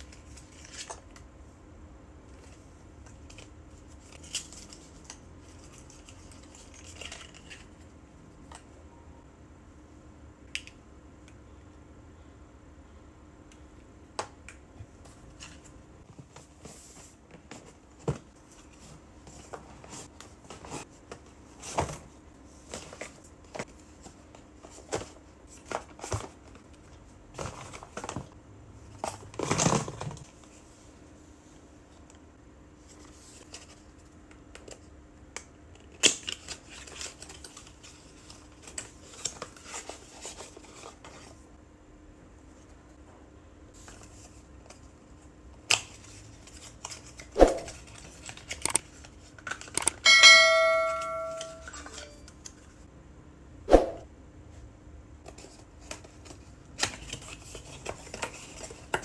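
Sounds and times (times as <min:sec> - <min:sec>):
crinkly packaging rustle: 0:00.0 - 0:01.3, 0:02.3 - 0:07.9, 0:35.8 - 0:41.5, 0:43.7 - 0:49.8, 0:55.2 - 0:59.0.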